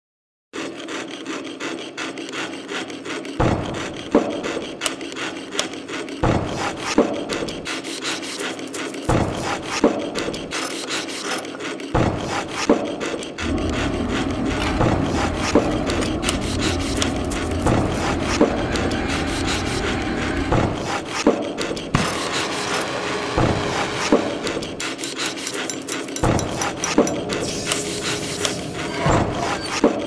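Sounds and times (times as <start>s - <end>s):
saw rasping through metal sheet: 0.6s - 30.0s
steady full noise: 13.4s - 21.2s.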